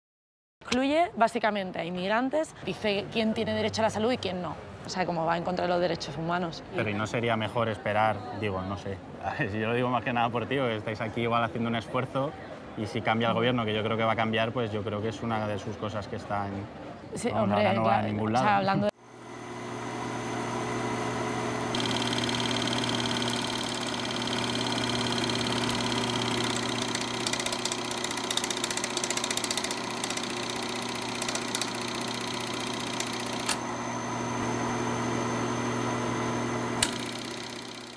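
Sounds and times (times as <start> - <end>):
film projector whirring and clattering: 19.0 - 37.9
projector click: 32.6 - 33.7, 36.7 - 37.5.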